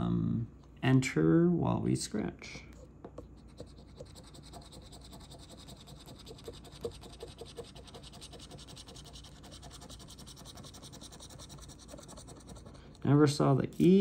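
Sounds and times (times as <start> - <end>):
scratching lottery ticket: 3.4 - 14.0.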